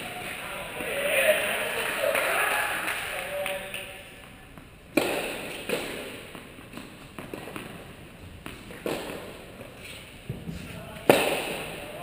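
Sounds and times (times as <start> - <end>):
tennis ball impacts echoing: 4.0 - 12.0.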